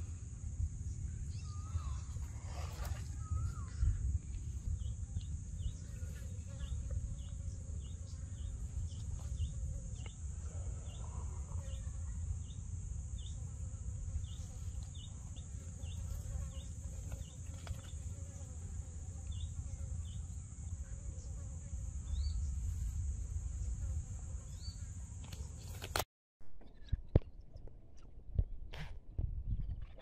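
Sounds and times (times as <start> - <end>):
short insect chirps: 19.3 - 26.0.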